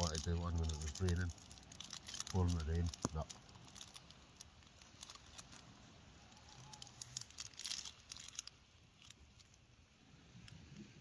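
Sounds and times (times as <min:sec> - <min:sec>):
fire popping: 0:00.0 - 0:09.8
campfire crackling: 0:00.0 - 0:11.0.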